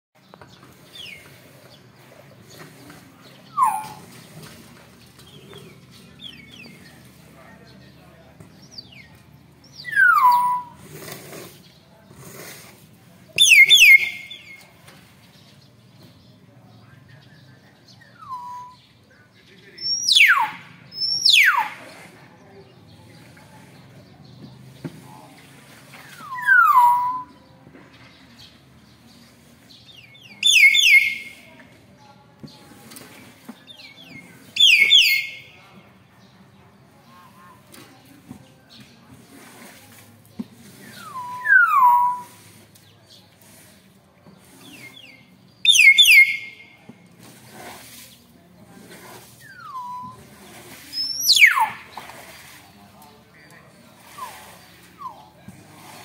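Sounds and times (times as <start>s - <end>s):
myna whistling call: 3.5s - 4.2s, 9.7s - 10.8s, 13.4s - 14.6s, 18.1s - 18.8s, 19.8s - 21.9s, 26.1s - 27.4s, 30.2s - 31.4s, 34.5s - 35.5s, 40.9s - 42.4s, 44.7s - 46.7s, 49.4s - 50.3s, 50.9s - 51.9s.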